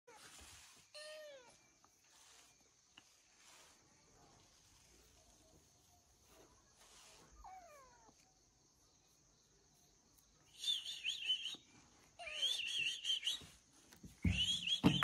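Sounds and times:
bird warbling whistled notes: 14.3 - 15.0.

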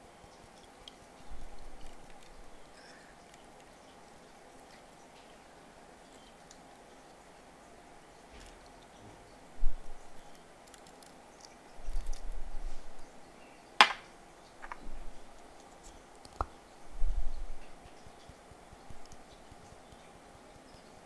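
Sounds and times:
plastic containers bumping and tapping: 13.8 - 14.0, 14.6 - 14.9.

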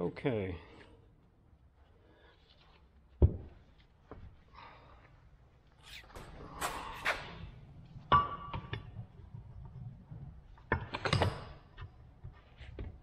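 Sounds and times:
knocks and handling noise: 2.5 - 4.4, 6.1 - 13.0.

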